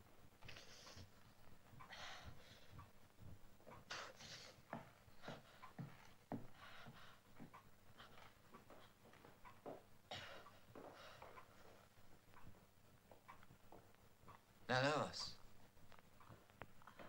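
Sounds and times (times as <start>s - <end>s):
man breathing heavily: 1.8s - 2.9s, 3.8s - 9.2s, 10.1s - 11.9s.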